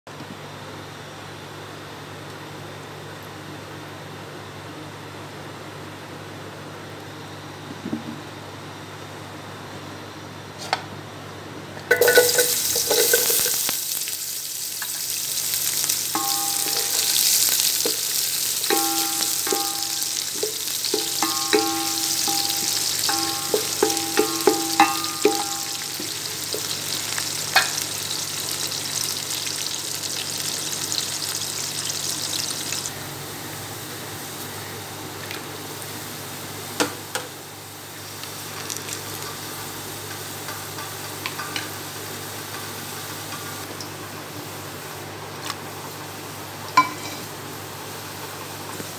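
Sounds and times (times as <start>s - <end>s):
onions frying in hot oil: 11.9s - 48.9s.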